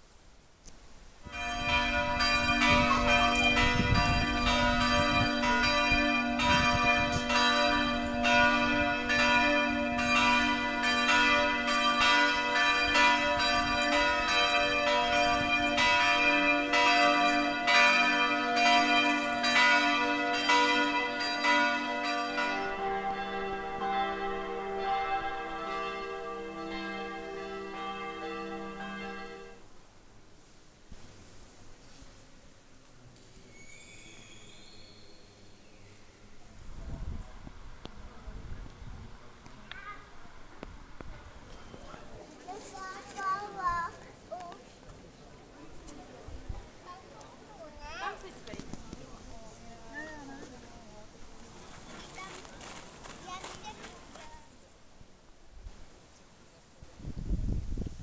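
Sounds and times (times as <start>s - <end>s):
church bells ringing: 1.3s - 29.6s.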